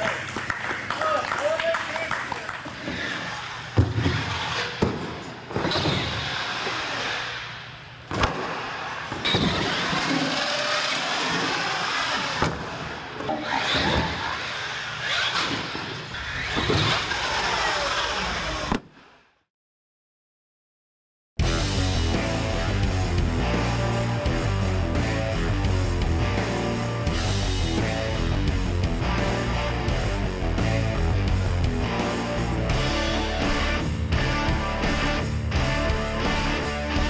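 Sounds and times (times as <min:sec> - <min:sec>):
toy truck motor whining: 0:09.5 - 0:12.4, 0:13.4 - 0:18.6.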